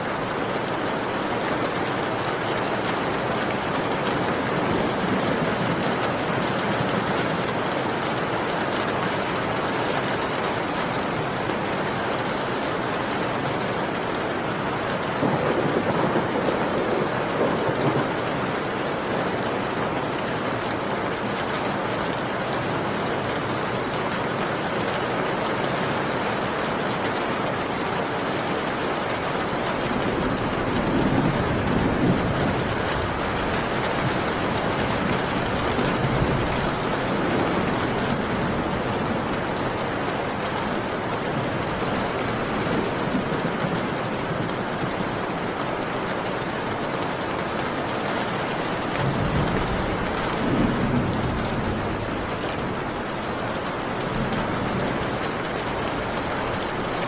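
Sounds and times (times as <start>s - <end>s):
steady rain: 0.0s - 57.0s
distant thunder rumble: 15.1s - 18.2s, 48.7s - 56.6s.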